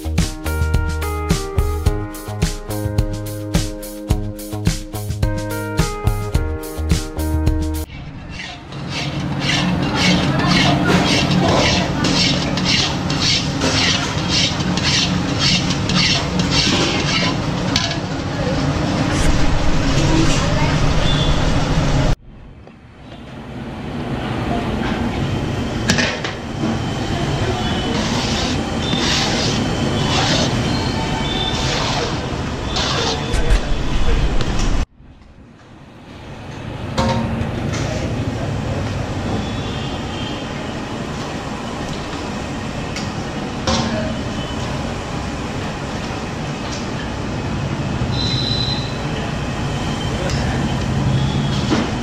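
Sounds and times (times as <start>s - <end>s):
spatula scraping metal pan: 8.2s - 17.9s, 27.9s - 33.3s
noisy din: 18.7s - 22.6s.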